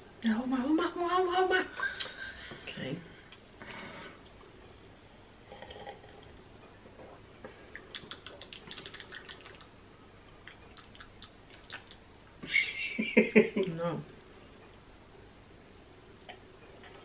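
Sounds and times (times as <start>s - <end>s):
people sipping from cups: 5.5s - 6.3s.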